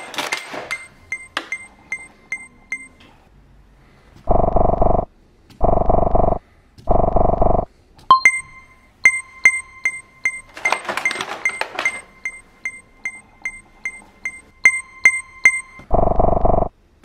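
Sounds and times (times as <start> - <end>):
electronic chime pings: 7.4 - 10.5, 12.0 - 16.7.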